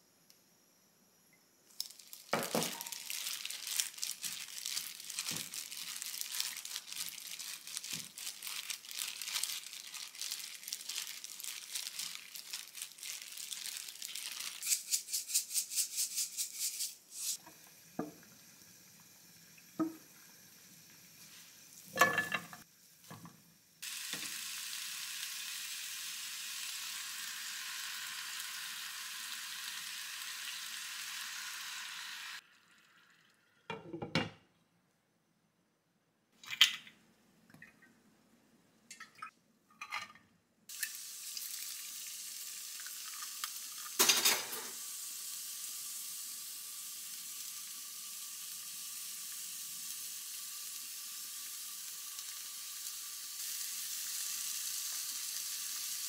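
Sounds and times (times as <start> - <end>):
plastic glove crinkling and squishing: 1.7 - 14.9
pan sizzling: 1.7 - 33.2, 40.7 - 56.0.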